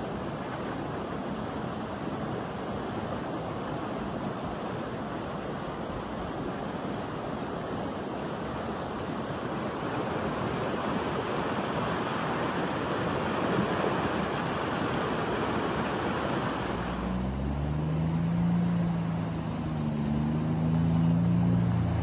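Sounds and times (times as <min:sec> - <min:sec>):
floodwater rushing: 0:00.0 - 0:22.0
utility vehicle engine: 0:16.7 - 0:22.0.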